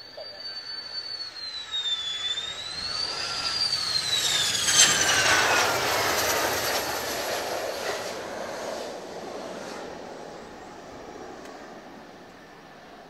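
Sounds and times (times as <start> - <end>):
jet engine passing with falling whine: 0.0 - 13.0.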